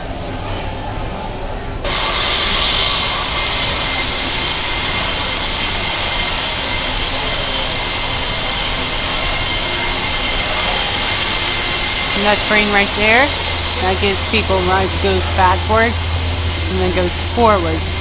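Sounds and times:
loud steady hiss with faint whine: 0:00.0 - 0:18.0.

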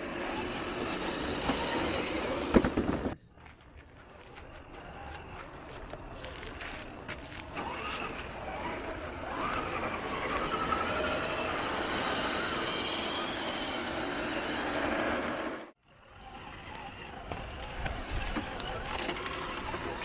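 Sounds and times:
rc crawler motors whining: 0:00.0 - 0:03.2, 0:03.9 - 0:20.0.

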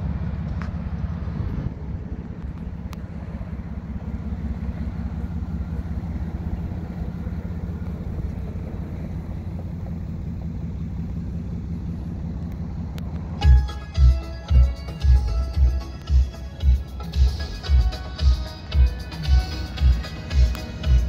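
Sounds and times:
car engine idling: 0:00.0 - 0:21.0.

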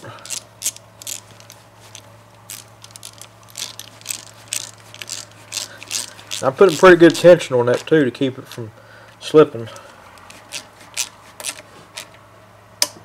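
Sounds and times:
socket ratchet clicking: 0:00.2 - 0:07.9, 0:10.1 - 0:12.2.

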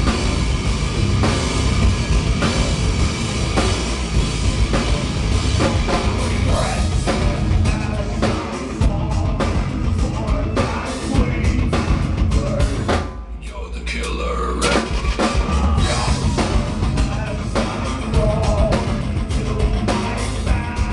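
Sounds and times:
heavy drum hits: 0:00.0 - 0:13.2, 0:14.7 - 0:20.9
heavy metal band playing: 0:00.0 - 0:20.9
person singing: 0:05.9 - 0:20.9.

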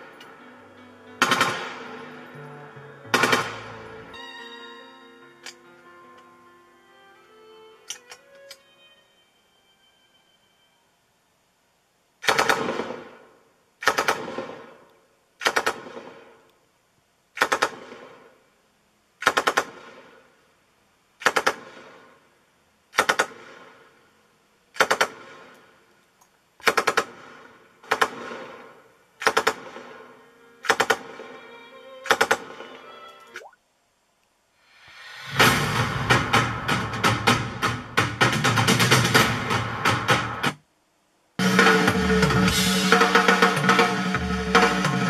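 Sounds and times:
percussive clatter bursts: 0:01.2 - 0:01.8, 0:03.1 - 0:03.7.

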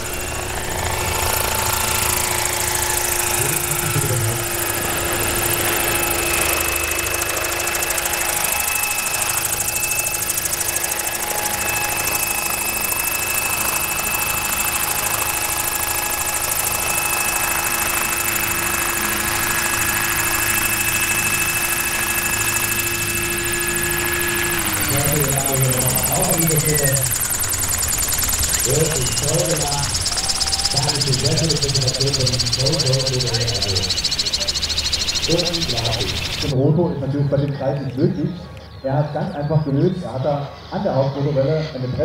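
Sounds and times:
electric motor whine: 0:00.0 - 0:36.6
rapid rotor blade beat: 0:00.0 - 0:36.6.

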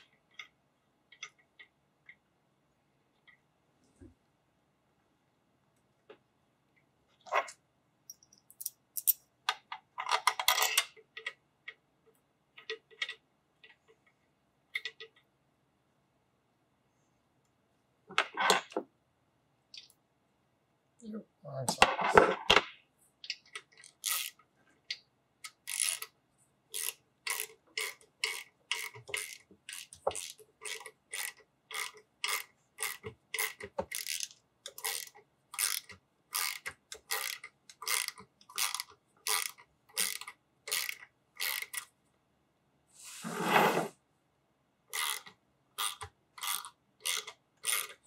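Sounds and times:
ratchet wrench clicking: 0:24.0 - 0:24.4, 0:25.7 - 0:26.1, 0:26.7 - 0:41.8, 0:45.0 - 0:48.0.

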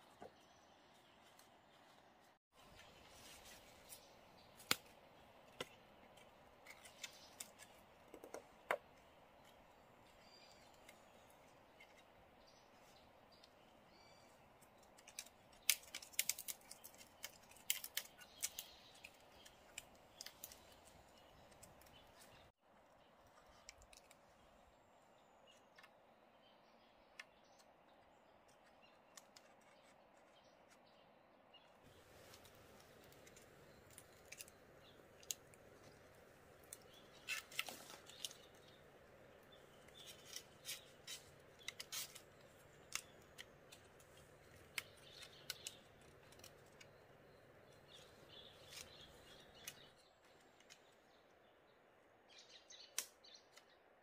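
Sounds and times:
faint birds chirping: 0:00.0 - 0:54.0
bamboo stem crackling and snapping: 0:03.4 - 0:12.2, 0:14.5 - 0:22.5, 0:23.3 - 0:24.4, 0:31.9 - 0:51.0, 0:52.8 - 0:53.6.

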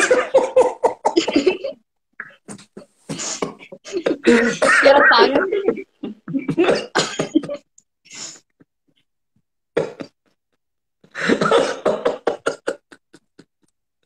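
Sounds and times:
man's stifled laughter: 0:03.4 - 0:06.7.

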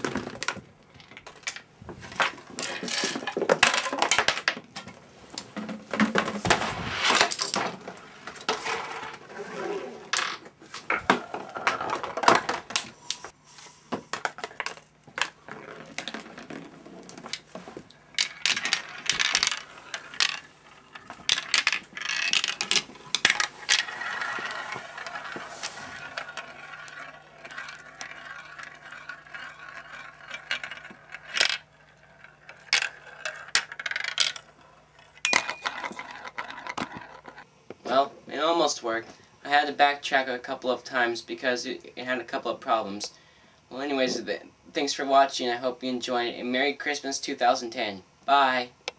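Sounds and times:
marble rolling down plastic track: 0:00.0 - 0:04.6, 0:05.6 - 0:12.9, 0:14.1 - 0:37.4.

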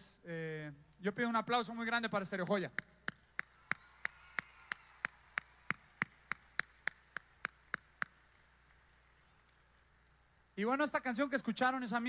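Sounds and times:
person clapping hands: 0:03.0 - 0:09.6.

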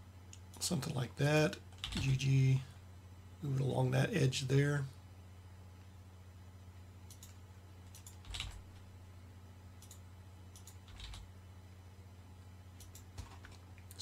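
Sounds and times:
faint low hum: 0:00.0 - 0:14.0
keyboard keystrokes: 0:07.1 - 0:08.6.

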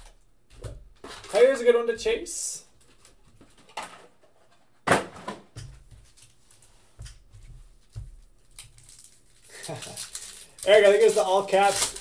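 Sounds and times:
foil crinkle: 0:08.4 - 0:12.0
foil packs rustling: 0:08.5 - 0:12.0.

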